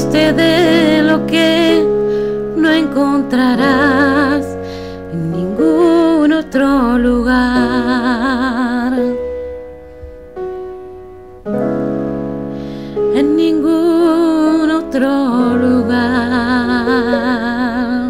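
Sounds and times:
woman singing with vibrato: 0.0 - 9.3, 13.1 - 18.0
piano chords: 0.0 - 18.0.

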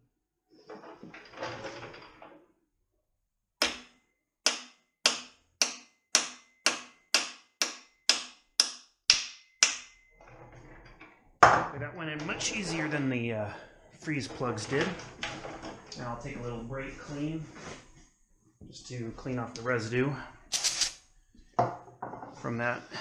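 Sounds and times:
hammer tapping metal: 3.6 - 10.0
shuffling and handling noise: 20.5 - 21.5.

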